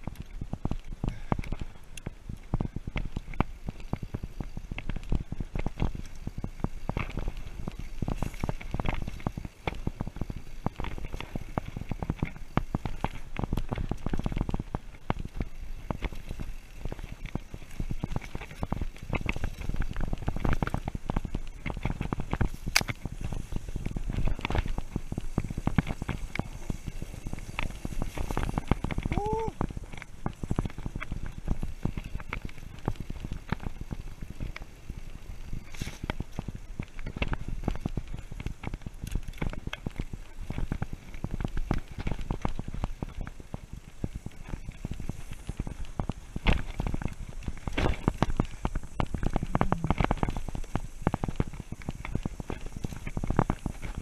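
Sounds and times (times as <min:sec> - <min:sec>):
mountain bike rattling: 0:00.0 - 0:54.0
low rumble: 0:48.0 - 0:50.8.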